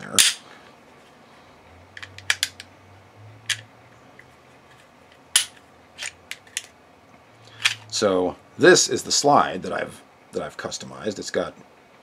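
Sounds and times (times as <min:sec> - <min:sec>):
pistol slide clicking: 0:05.4 - 0:06.7.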